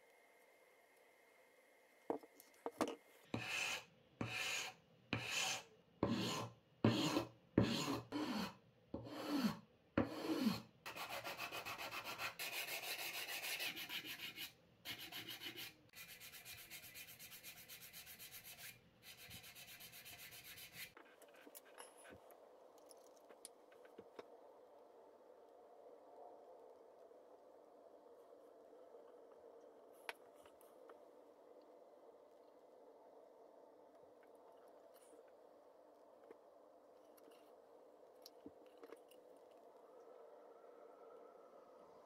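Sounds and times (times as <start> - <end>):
sandpaper rubbing on wood: 10.1 - 21.0.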